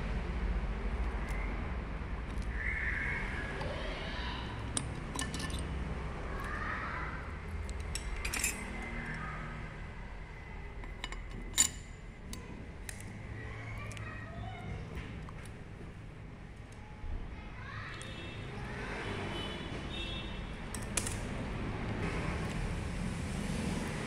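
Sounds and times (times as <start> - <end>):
metal parts clinking on housing: 4.6 - 5.8, 7.6 - 9.0, 10.8 - 13.0, 20.7 - 21.2.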